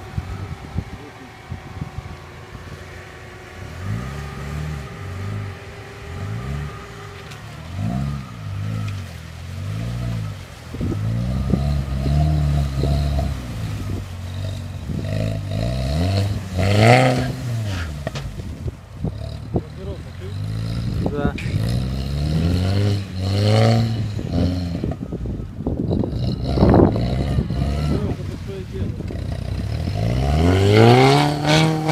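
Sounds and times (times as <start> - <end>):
car engine revving: 0.0 - 31.9.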